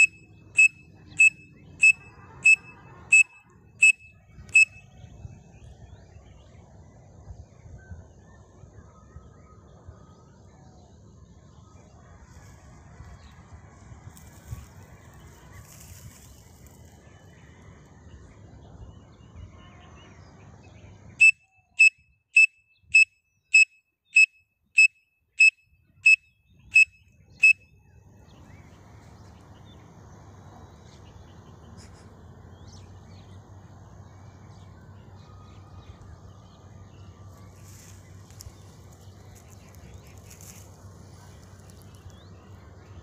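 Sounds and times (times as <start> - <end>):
high-pitched whistle notes: 21.2 - 27.6.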